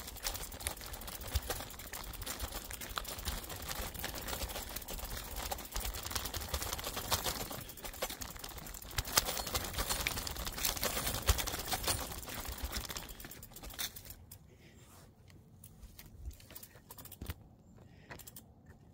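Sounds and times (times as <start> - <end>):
tyres crunching over dry leaves: 0.0 - 14.2
bike rattling over bumps: 0.0 - 14.4.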